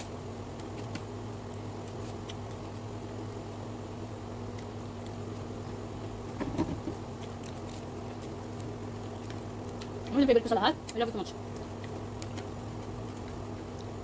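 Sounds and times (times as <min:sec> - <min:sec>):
chewing: 0:04.3 - 0:05.8, 0:06.8 - 0:14.0.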